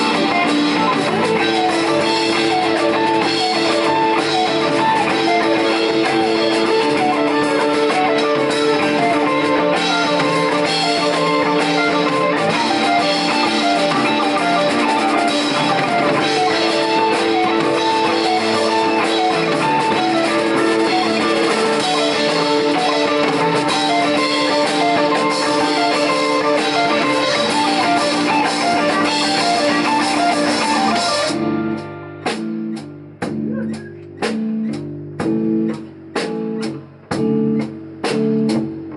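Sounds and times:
drum kit: 0:00.0 - 0:38.9
electric bass: 0:00.0 - 0:38.9
electric guitars: 0:00.0 - 0:38.9.

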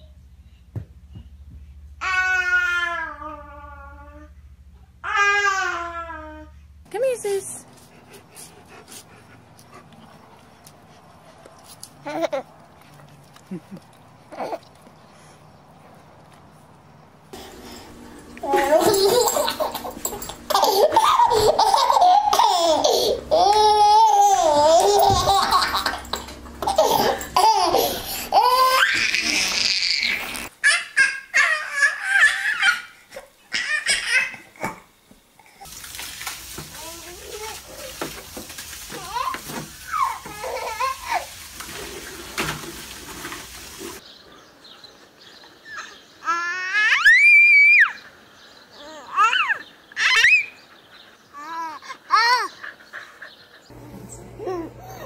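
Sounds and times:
baby laughing and squealing: 0:18.4 - 0:34.5, 0:39.0 - 0:41.4, 0:48.8 - 0:50.6, 0:51.3 - 0:52.6, 0:54.4 - 0:55.0
steady water noise: 0:35.6 - 0:44.0
water splashing in pool: 0:35.6 - 0:44.0
small child vocal sounds: 0:48.7 - 0:50.4.

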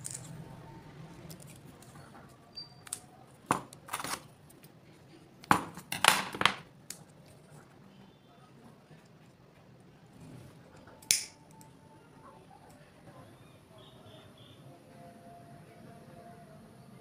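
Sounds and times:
scissors clicking: 0:11.0 - 0:11.7.

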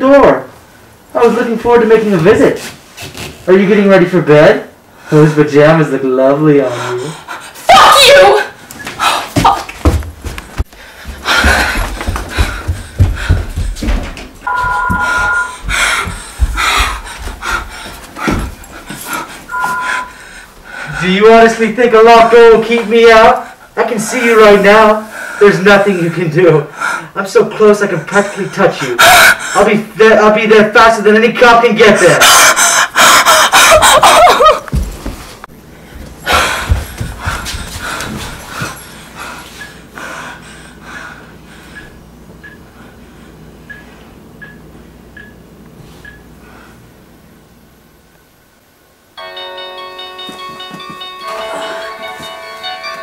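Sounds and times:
person breathing heavily: 0:06.6 - 0:07.7, 0:10.7 - 0:14.0, 0:15.0 - 0:21.2, 0:26.7 - 0:27.2, 0:28.3 - 0:29.7, 0:32.2 - 0:34.3, 0:35.7 - 0:42.0
woman panting and gasping: 0:10.8 - 0:13.8, 0:15.0 - 0:20.5, 0:32.3 - 0:34.6, 0:36.2 - 0:39.6
electronic two-tone beep: 0:14.5 - 0:15.6, 0:19.5 - 0:20.2.

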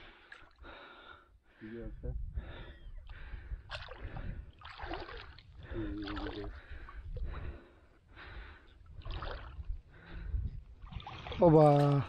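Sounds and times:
water splashing: 0:03.7 - 0:07.4, 0:08.9 - 0:09.7, 0:10.8 - 0:12.0.

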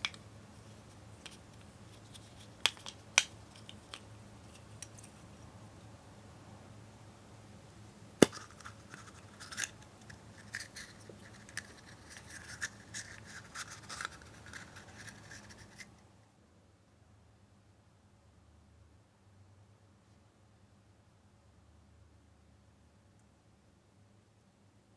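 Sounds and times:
plastic capsule snapping open: 0:08.2 - 0:09.8
paper crinkling: 0:08.3 - 0:15.9.

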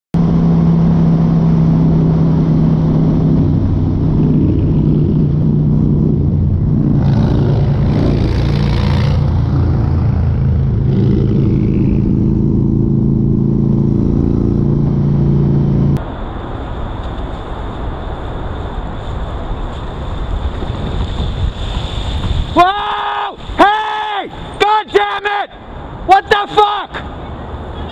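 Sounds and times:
motorcycle engine running: 0:00.2 - 0:16.0
wind noise: 0:00.2 - 0:24.6.

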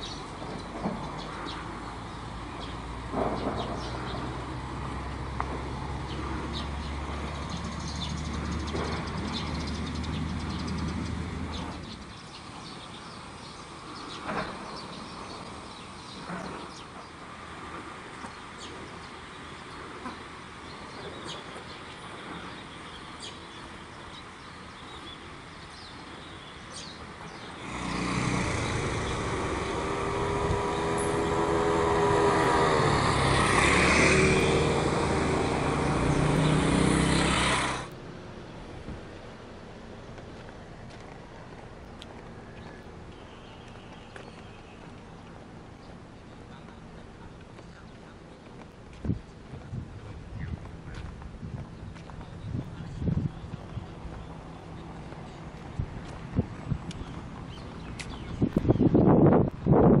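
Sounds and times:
birds chirping: 0:00.0 - 0:05.0, 0:05.8 - 0:59.4
vehicle approaching: 0:00.0 - 1:00.0
vehicle engine running: 0:27.5 - 1:00.0.

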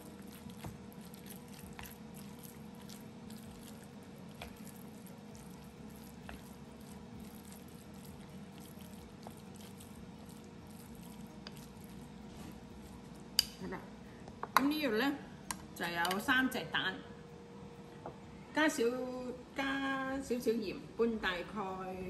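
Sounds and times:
wet squishing of meat: 0:00.0 - 0:13.2.

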